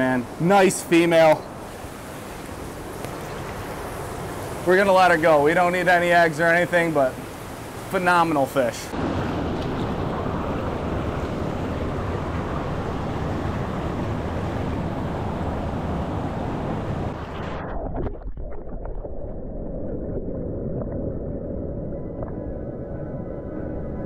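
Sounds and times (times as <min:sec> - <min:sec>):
river water rushing and splashing: 0:00.0 - 0:17.3
muffled underwater water noise: 0:00.0 - 0:24.0.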